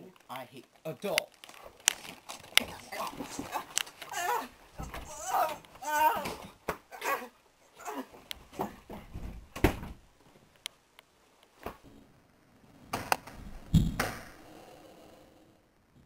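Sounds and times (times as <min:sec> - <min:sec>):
people scuffling: 0:00.0 - 0:10.5
camera being jostled: 0:01.2 - 0:04.2.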